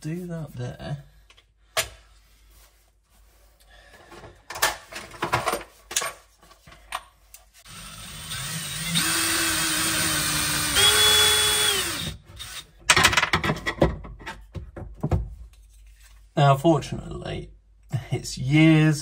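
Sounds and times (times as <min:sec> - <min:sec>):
cordless drill whining: 0:07.7 - 0:12.7.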